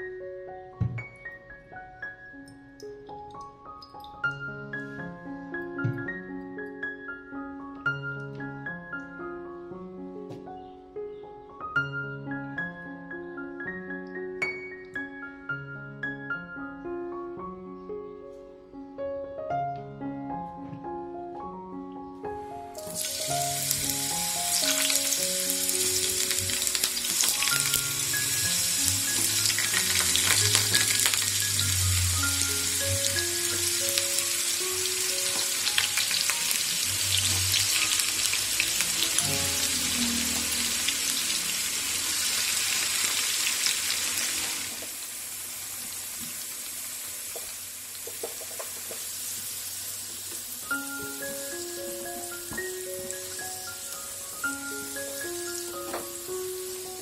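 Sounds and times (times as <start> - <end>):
background music: 0.0 - 43.4, 50.6 - 57.0
potato wedges deep-frying in oil: 22.8 - 57.0.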